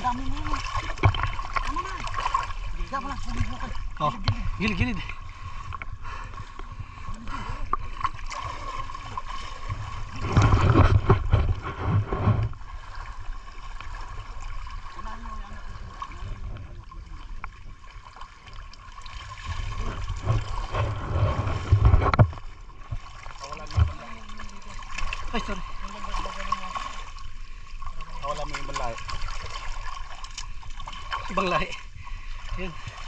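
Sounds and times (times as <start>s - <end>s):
water sloshing from wading: 0.0s - 33.0s.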